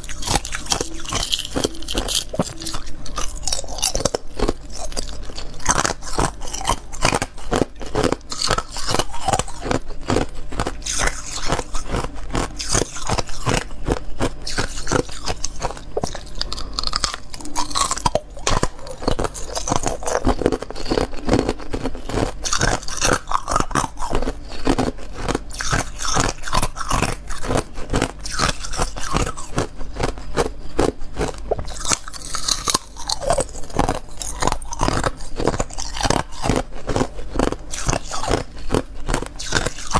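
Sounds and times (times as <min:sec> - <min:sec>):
ice being crunched and chewed: 0:00.0 - 0:39.9.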